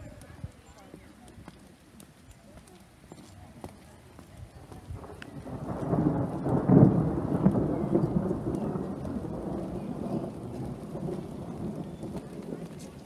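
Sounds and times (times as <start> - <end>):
thunder rumbling: 5.0 - 13.0.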